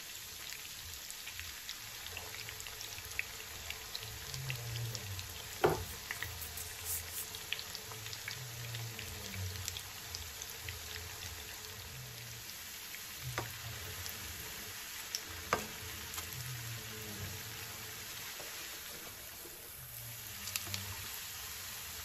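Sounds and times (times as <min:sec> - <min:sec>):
balls deep-frying in hot oil: 0:00.0 - 0:22.0.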